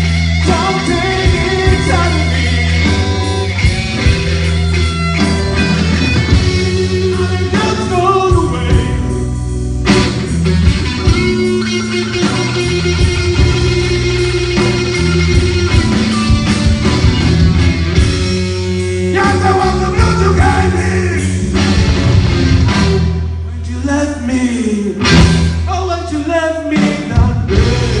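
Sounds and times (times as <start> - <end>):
bass guitar: 0.0 - 28.0
drums: 0.0 - 28.0
electric guitars: 0.0 - 28.0.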